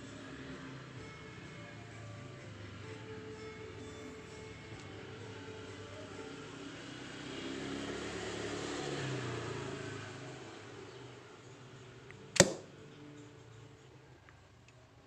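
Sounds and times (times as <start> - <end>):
crossbow bolt snapping into cardboard: 12.4 - 12.7.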